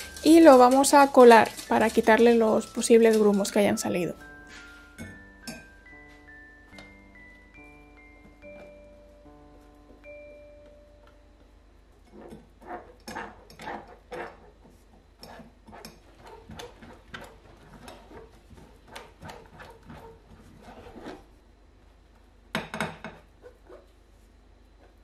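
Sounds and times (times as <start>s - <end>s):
spatula scraping through metal sieve: 0.0s - 4.9s, 12.0s - 21.3s.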